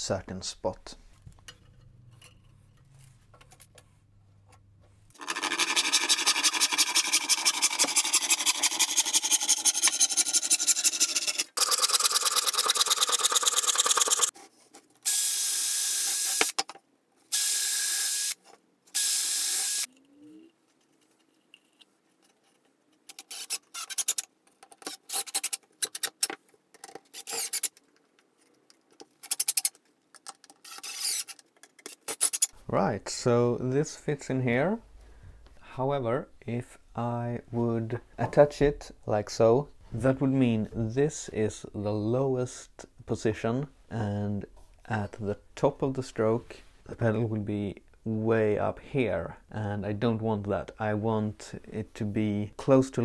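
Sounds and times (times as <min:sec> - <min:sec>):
drill driving screws: 0:15.0 - 0:16.6, 0:17.3 - 0:19.9, 0:30.6 - 0:31.3
drill cutting wood: 0:15.1 - 0:16.6, 0:17.3 - 0:18.4, 0:19.0 - 0:19.9
drill motor whine: 0:19.0 - 0:19.9.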